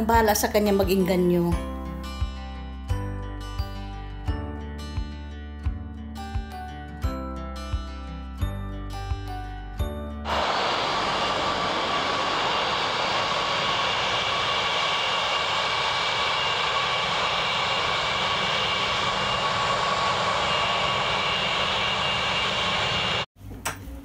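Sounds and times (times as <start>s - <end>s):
jet engines whining: 10.3s - 23.3s.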